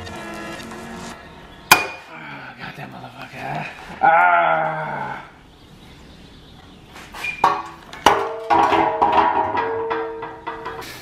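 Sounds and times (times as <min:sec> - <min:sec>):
metal car part clanking on concrete: 0:07.2 - 0:11.0.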